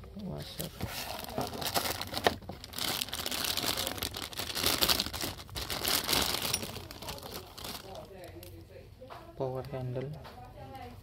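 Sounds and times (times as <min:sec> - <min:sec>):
plastic bag crinkling: 0:00.4 - 0:08.5.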